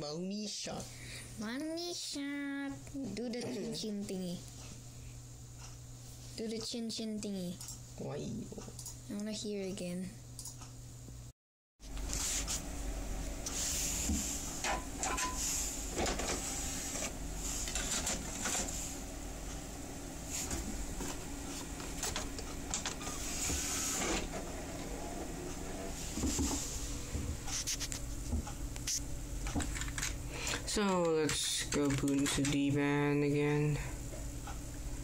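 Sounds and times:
computer fan hum: 0:00.0 - 0:35.0
optical drive clicks and whirring: 0:20.5 - 0:26.0, 0:27.1 - 0:33.2.

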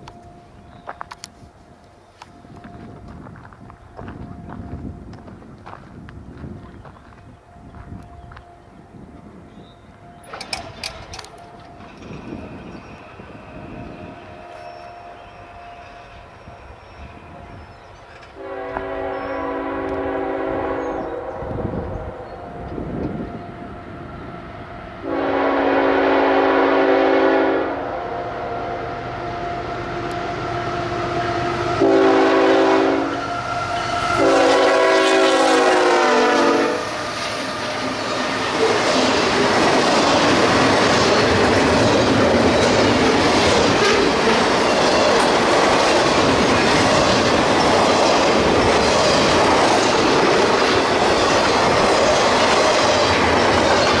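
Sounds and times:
train wheels on rails: 0:00.0 - 0:54.0
locomotive air horn blasts: 0:18.4 - 0:39.3.

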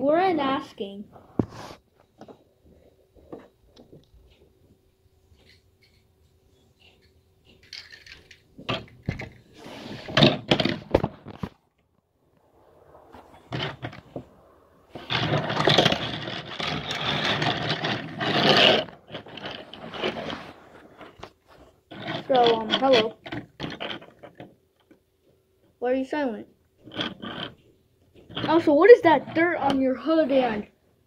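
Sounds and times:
toy cars scraping on tabletop: 0:01.1 - 0:01.8, 0:07.8 - 0:11.5, 0:12.4 - 0:24.5, 0:26.8 - 0:30.7.

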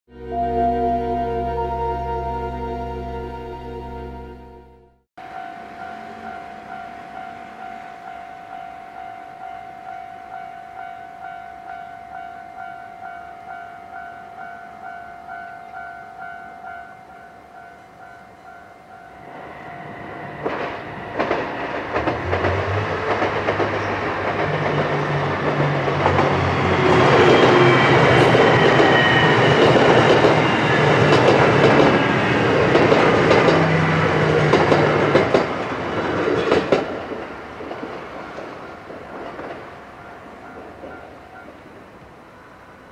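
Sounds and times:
level crossing bell ringing: 0:00.1 - 0:20.1
diesel train engine drone: 0:00.1 - 0:42.9
train wheels clacking over rails: 0:20.4 - 0:41.6.

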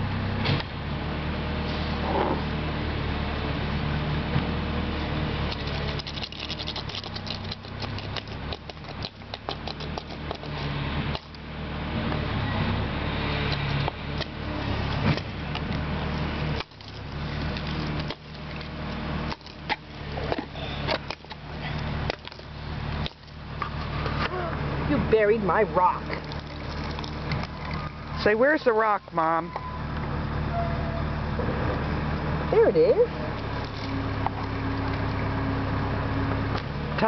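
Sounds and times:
clicks scrapes and rattles: 0:05.5 - 0:11.4.

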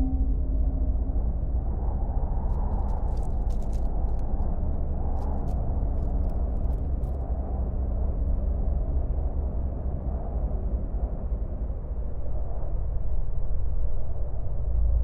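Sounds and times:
low rumbling drone: 0:00.0 - 0:05.2.

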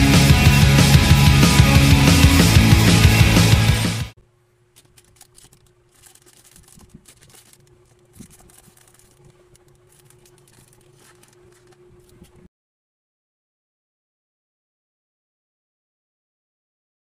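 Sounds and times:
faint steady hum: 0:04.2 - 0:12.5
light clicks of plastic pieces: 0:04.7 - 0:12.4
rustling of plastic pieces: 0:04.8 - 0:12.3.

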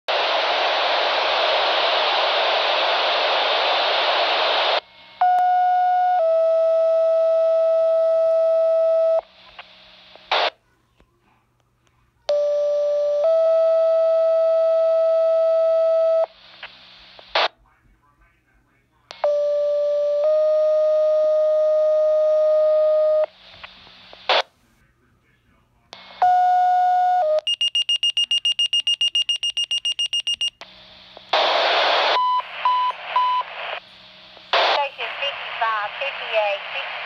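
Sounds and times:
radio static hiss: 0:00.1 - 0:05.2, 0:09.2 - 0:10.6, 0:16.2 - 0:19.3, 0:23.2 - 0:26.4, 0:30.6 - 0:37.0
two-tone paging tones: 0:27.4 - 0:30.6.

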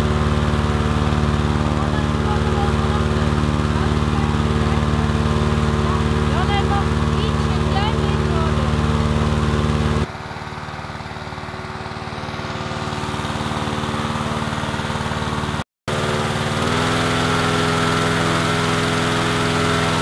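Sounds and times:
engine-driven fan running: 0:00.0 - 0:20.0.

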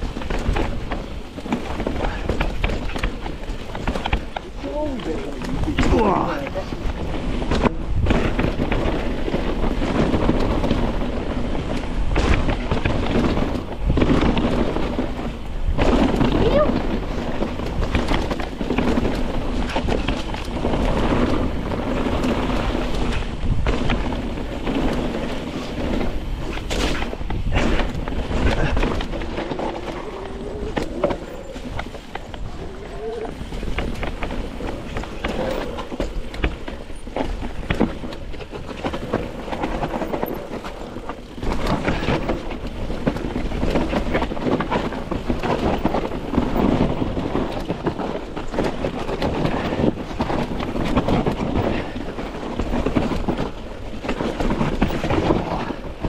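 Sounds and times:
bike rattling over bumps: 0:00.0 - 0:56.0
bike tyres rolling over dirt: 0:00.0 - 0:56.0
wind rumbling on microphone: 0:00.0 - 0:56.0.

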